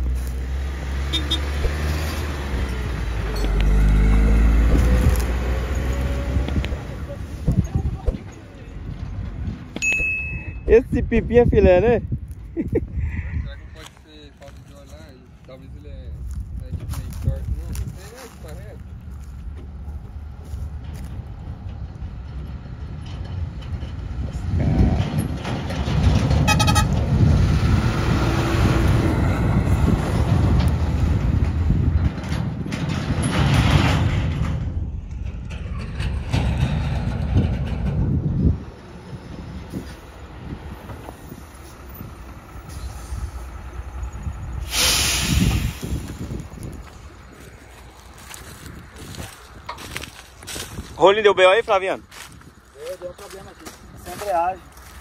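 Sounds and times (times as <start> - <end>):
diesel engine rumbling: 0.0 - 55.0
horn toot: 1.0 - 1.6, 26.4 - 27.0.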